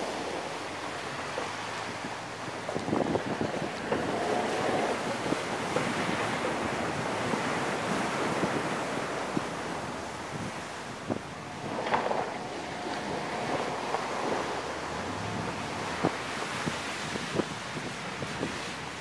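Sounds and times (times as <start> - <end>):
wind rushing over microphone: 1.8 - 19.0
knocks and rattles over bumps: 11.0 - 16.4.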